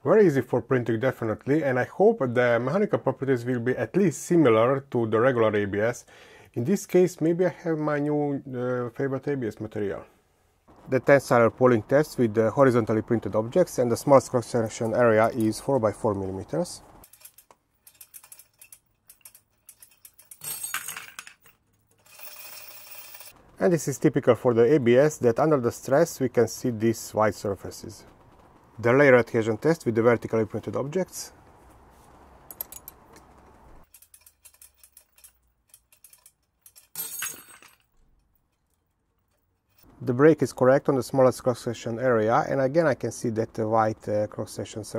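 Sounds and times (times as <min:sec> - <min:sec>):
chain and hook clinking: 0:17.0 - 0:23.4, 0:32.5 - 0:33.0, 0:33.8 - 0:39.9
steady hiss: 0:23.5 - 0:32.4.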